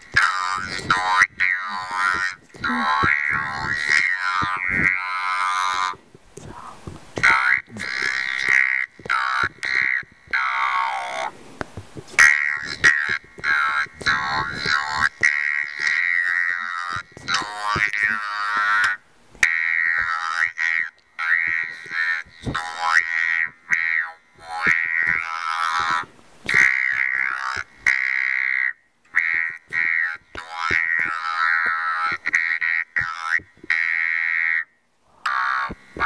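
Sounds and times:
robotic talk box voice: 0.0 - 11.3, 12.0 - 34.7, 35.3 - 36.0.

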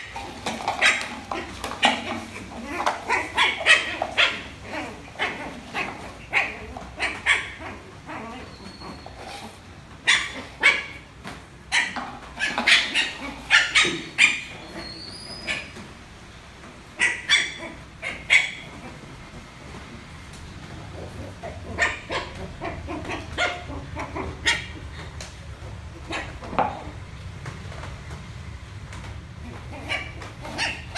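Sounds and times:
puppy yapping: 0.0 - 11.1, 11.7 - 15.9, 17.0 - 19.1, 21.0 - 25.1, 25.9 - 27.0, 29.4 - 30.9.

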